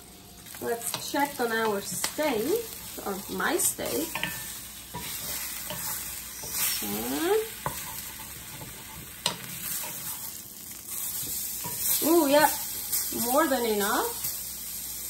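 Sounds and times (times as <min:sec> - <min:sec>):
steak sizzling in a pan: 0:00.0 - 0:15.0
wooden spatula scraping pan: 0:02.8 - 0:12.9.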